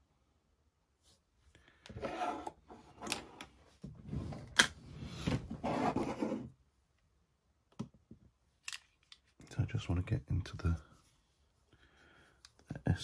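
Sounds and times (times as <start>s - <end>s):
rubbing and scraping on table: 1.9s - 6.6s.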